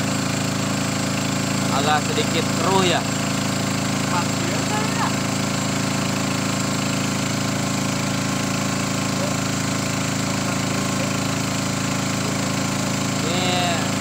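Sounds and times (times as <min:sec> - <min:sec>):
boat engine running: 0:00.0 - 0:14.0.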